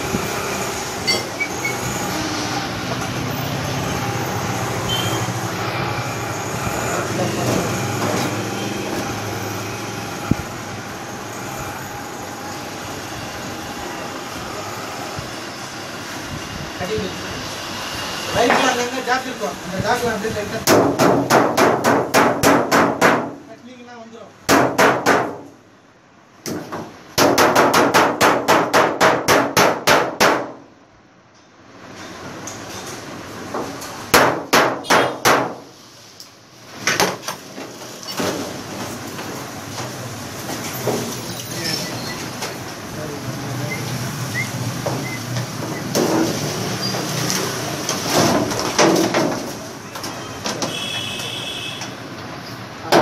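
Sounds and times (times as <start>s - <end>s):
tool striking metal cabinet: 20.6s - 23.4s, 24.5s - 25.5s, 26.5s - 30.6s, 33.6s - 35.7s.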